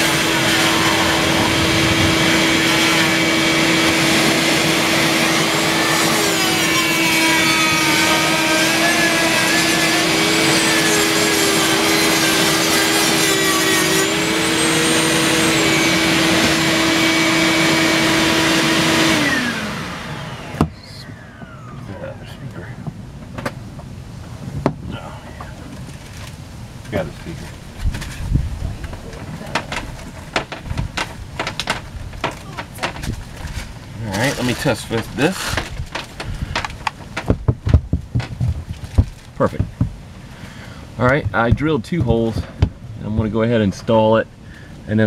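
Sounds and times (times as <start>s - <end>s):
rotary tool grinding fiberglass: 0.0s - 19.7s, 28.9s - 37.3s
shop vac humming: 0.0s - 24.2s, 28.8s - 45.0s.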